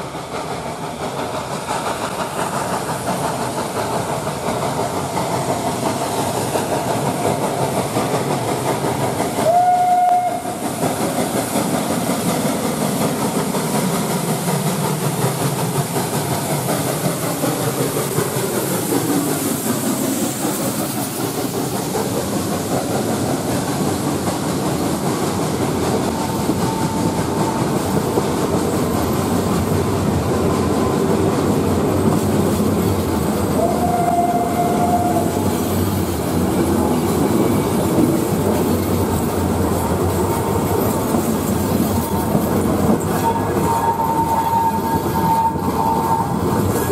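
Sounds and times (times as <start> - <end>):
steam locomotive passing: 0.0 - 46.9
train wheels clacking over rail joints: 0.0 - 46.9
steam train whistle: 9.4 - 10.8, 26.1 - 27.8, 33.5 - 35.6, 43.1 - 46.9.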